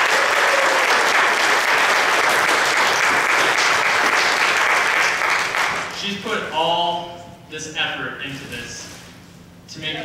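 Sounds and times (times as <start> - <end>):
audience applauding: 0.0 - 5.9.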